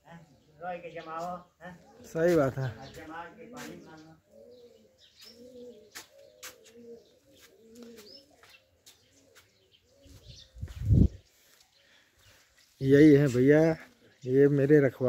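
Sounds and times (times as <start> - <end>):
small birds chirping: 0.0 - 15.0
dove cooing: 1.7 - 11.2.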